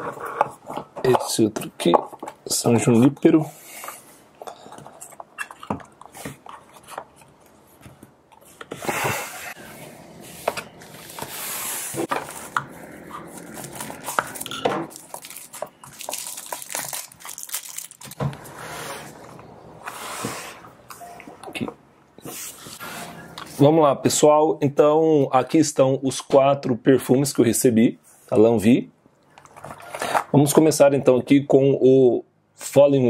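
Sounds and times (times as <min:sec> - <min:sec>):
cardboard boxes rustling and scraping: 0:06.1 - 0:14.5.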